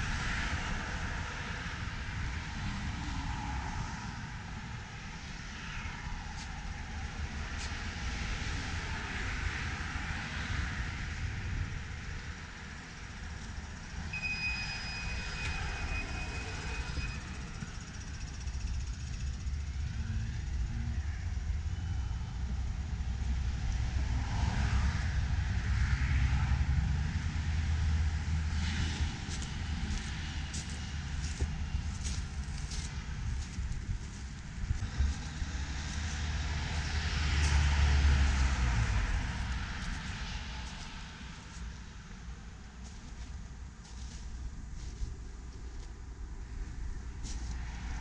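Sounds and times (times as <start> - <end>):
road traffic passing: 0.0 - 48.0
wind rumbling on microphone: 0.0 - 48.0
short high whine: 14.0 - 17.9.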